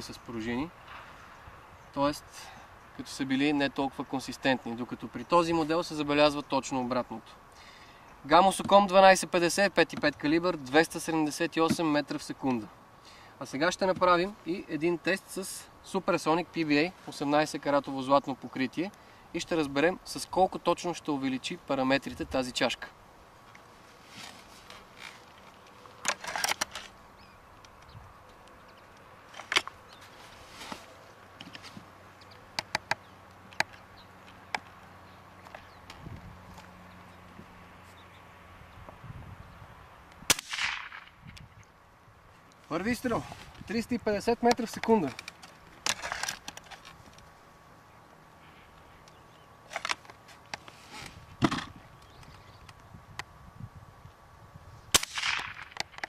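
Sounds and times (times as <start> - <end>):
air rifle clicks: 55.0 - 56.0.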